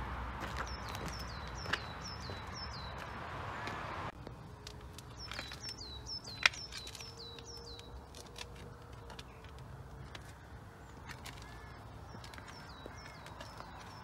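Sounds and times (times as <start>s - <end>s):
small bird chirping: 4.9s - 14.0s.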